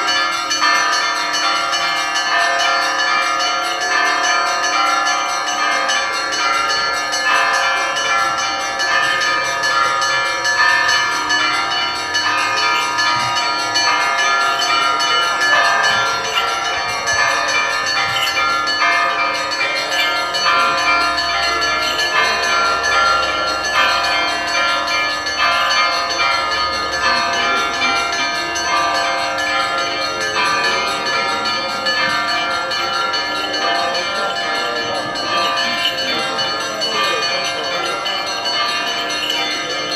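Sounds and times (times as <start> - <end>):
church bells pealing: 0.0 - 39.9.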